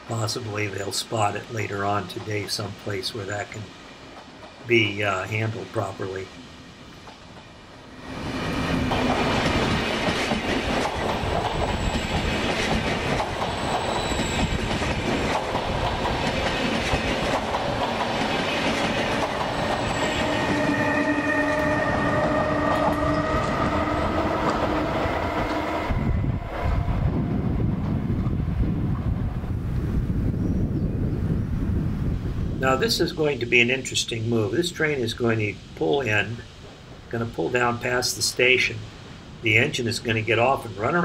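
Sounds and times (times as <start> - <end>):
train wheels clattering: 8.1 - 25.8
steady whining tone: 18.5 - 27.7.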